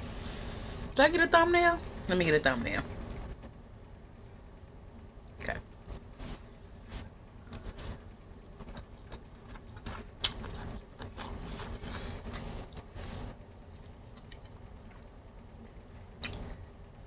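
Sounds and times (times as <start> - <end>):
wet chewing smacks: 8.6 - 12.9, 13.6 - 16.6.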